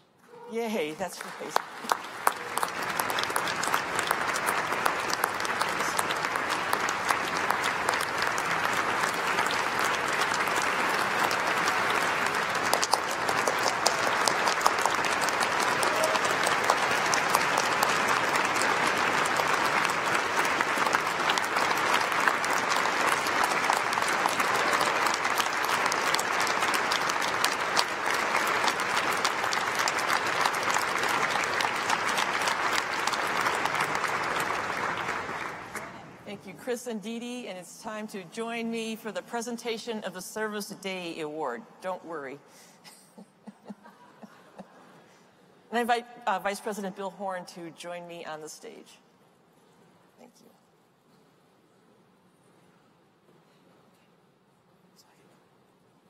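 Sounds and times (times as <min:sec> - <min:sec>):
audience applauding: 0:00.8 - 0:36.2.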